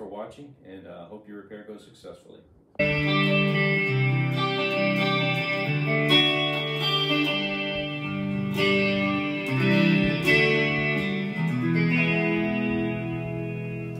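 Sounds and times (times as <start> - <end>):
electric guitar chords strummed: 2.8 - 13.9.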